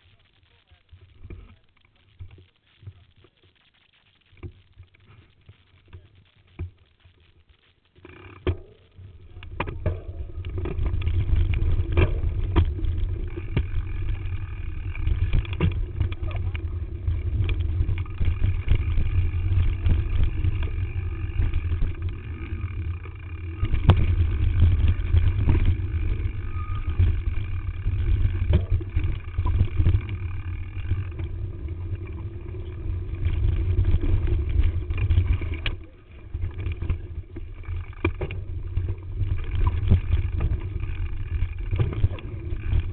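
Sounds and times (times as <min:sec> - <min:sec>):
bike rattling over bumps: 0:07.9 - 0:42.9
wind rumbling on microphone: 0:08.8 - 0:42.9.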